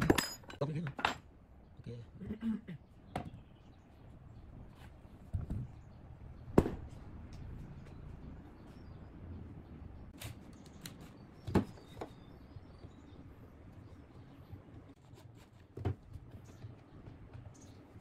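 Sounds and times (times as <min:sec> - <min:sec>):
wooden and metal parts knocking: 0:00.0 - 0:01.3.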